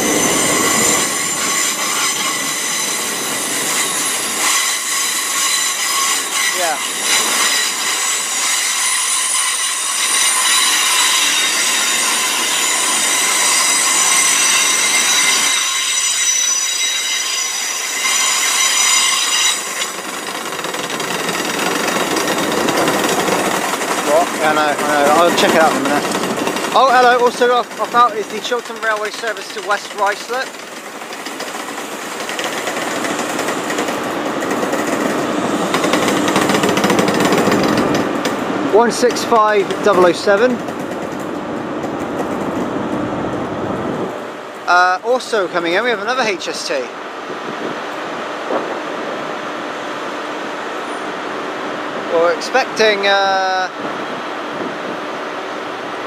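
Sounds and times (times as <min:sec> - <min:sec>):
wheel flange squeal: 0:00.0 - 0:20.1
wheel and track noise: 0:00.0 - 0:49.2
diesel train engine clatter: 0:00.0 - 0:56.0.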